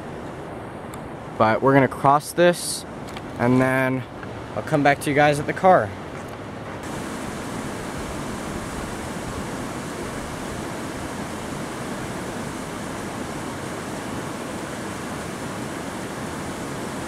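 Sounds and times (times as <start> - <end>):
fast-flowing creek: 6.8 - 17.0.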